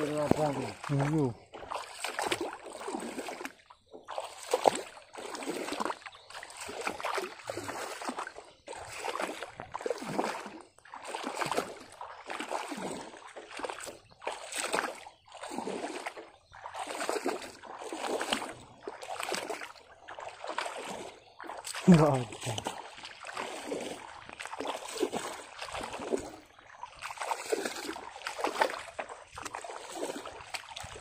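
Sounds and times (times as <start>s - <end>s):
bare feet wading through water: 0.0s - 31.0s.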